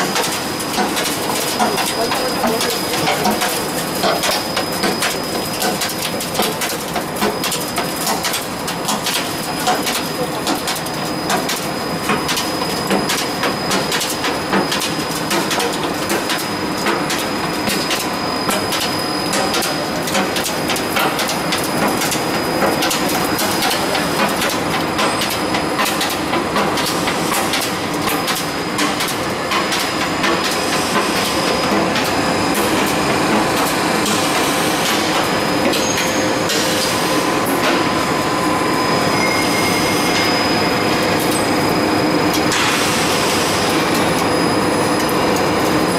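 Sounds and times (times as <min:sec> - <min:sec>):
high steady machine whine: 0:00.0 - 0:45.9
roll forming machine clatter: 0:00.0 - 0:45.9.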